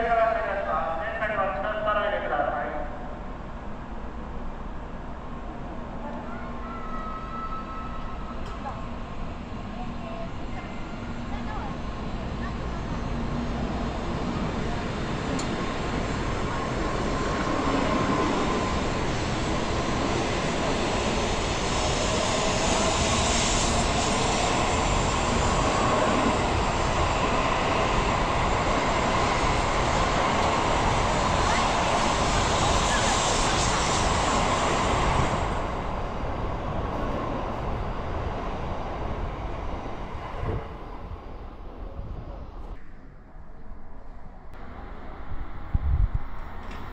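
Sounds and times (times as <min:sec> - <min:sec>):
train passing at high speed: 0:00.0 - 0:46.9
wind buffeting microphone: 0:44.7 - 0:46.9.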